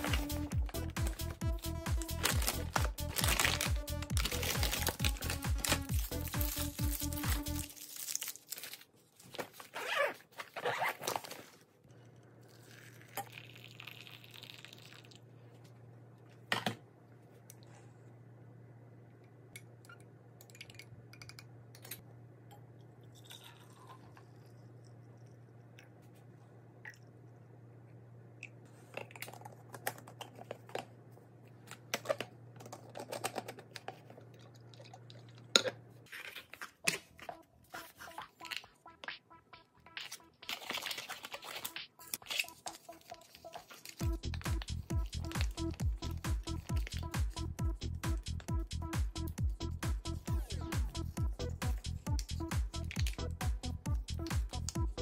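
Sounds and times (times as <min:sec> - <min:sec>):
zipper closing fabric bag: 0:09.6 - 0:11.5.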